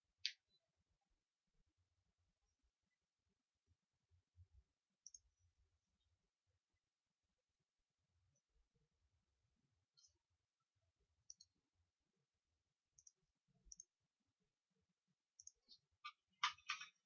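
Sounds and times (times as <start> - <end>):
computer mouse clicks: 5.0 - 5.4, 11.2 - 11.6, 12.9 - 14.0, 15.4 - 17.0.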